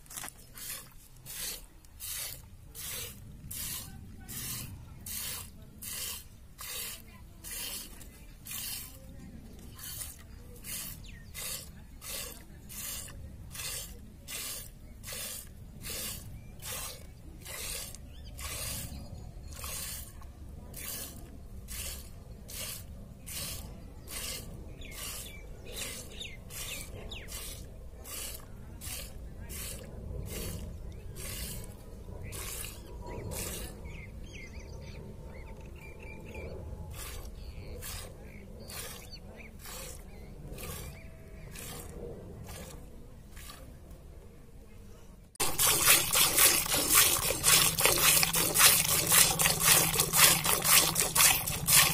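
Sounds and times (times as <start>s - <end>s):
milk squirting into metal bowl: 0.1s - 20.1s, 20.7s - 30.6s, 45.4s - 51.9s.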